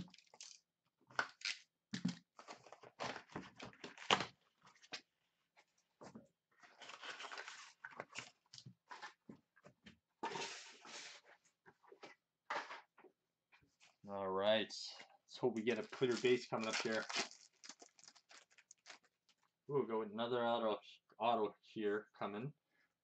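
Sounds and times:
foil packs rustling: 15.6 - 19.4.

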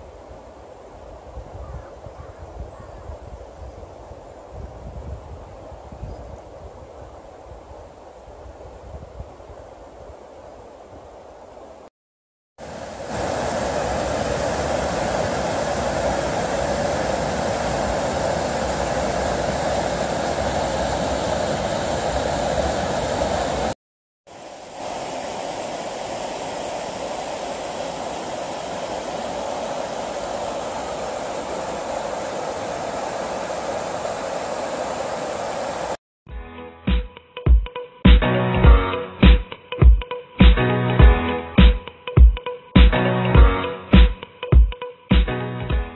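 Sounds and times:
water rushing over waterfall: 12.6 - 36.0.

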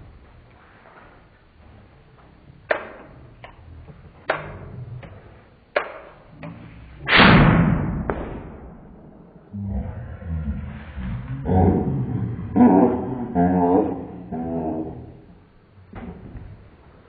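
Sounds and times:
cannon firing boom: 7.0 - 9.5.

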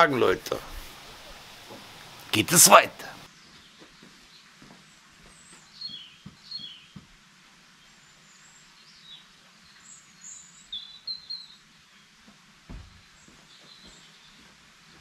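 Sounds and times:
outdoor background noise: 0.0 - 15.0
small birds chirping: 0.1 - 15.0
dull low thump: 12.7 - 13.1.

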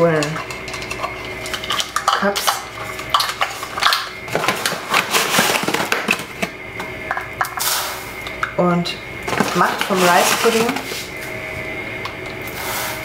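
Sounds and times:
plastic cups clattering: 0.0 - 8.6, 9.3 - 11.1
food packaging rustling: 1.6 - 7.0, 9.2 - 11.4.

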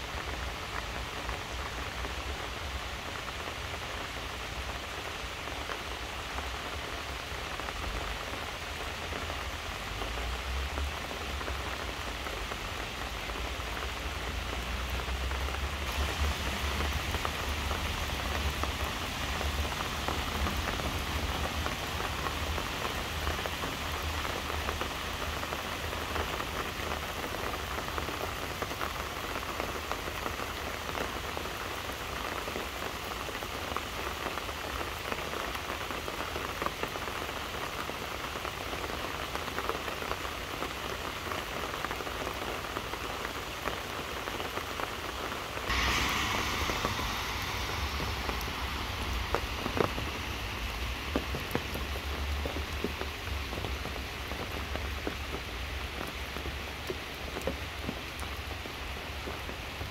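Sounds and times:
rain falling on trees and grass: 0.0 - 59.9
sharp water drips: 45.6 - 59.6.

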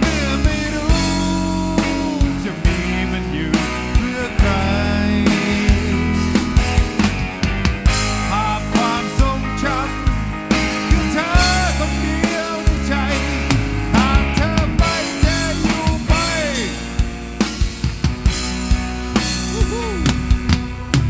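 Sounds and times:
person singing: 0.0 - 6.4, 8.1 - 17.1, 19.3 - 20.3
rock band playing live: 0.0 - 21.0
sliding bending lead melody: 0.0 - 21.0.

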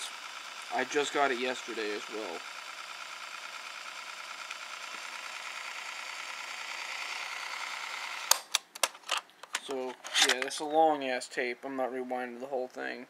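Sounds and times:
cassette tape rewinding whir: 0.0 - 8.5
sharp click: 8.3 - 10.6.

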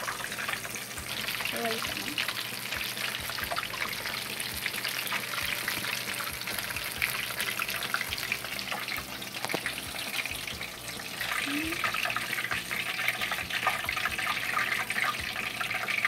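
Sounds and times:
food deep-frying in oil: 0.0 - 16.0.

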